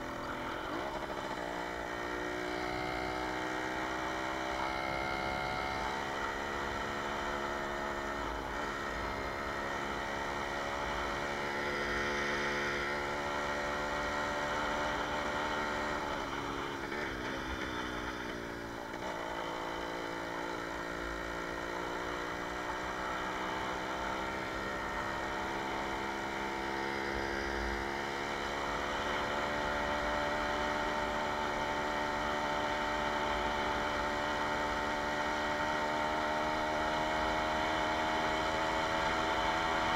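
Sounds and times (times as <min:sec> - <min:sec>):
two-stroke moped engine running: 0:00.0 - 0:39.9.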